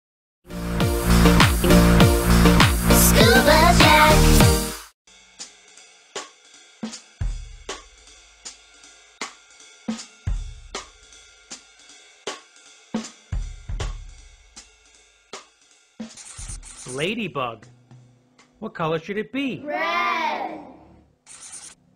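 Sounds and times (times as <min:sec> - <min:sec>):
deep bass note: 0:01.1 - 0:03.1
cymbal and snare hits: 0:04.5 - 0:17.0.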